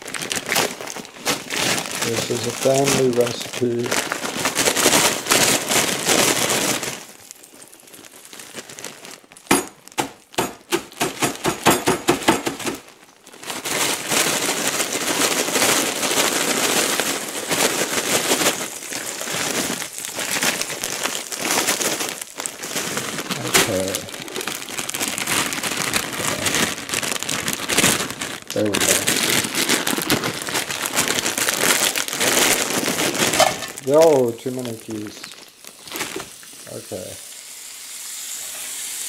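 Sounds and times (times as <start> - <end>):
plastic bag crinkling: 0.0 - 37.4
food sizzling in frying pan: 33.1 - 39.0.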